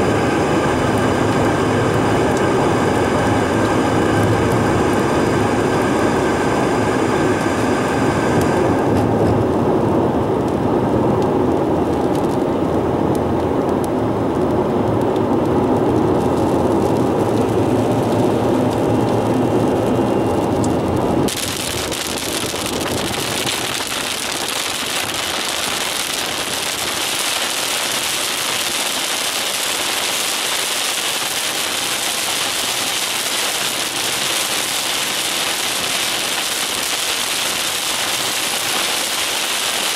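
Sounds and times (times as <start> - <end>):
heavy rain on car roof: 0.0 - 39.9
road and engine noise in car: 0.0 - 39.9.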